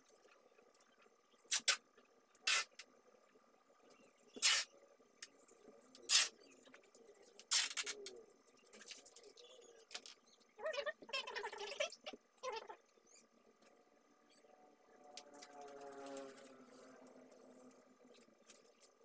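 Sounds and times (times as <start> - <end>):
tape ripping off roll: 7.5 - 8.0.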